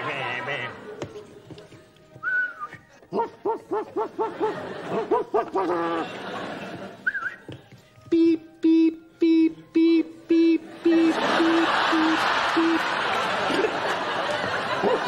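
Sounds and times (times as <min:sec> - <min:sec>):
audience laughter: 0:03.3 - 0:07.1, 0:10.7 - 0:15.0.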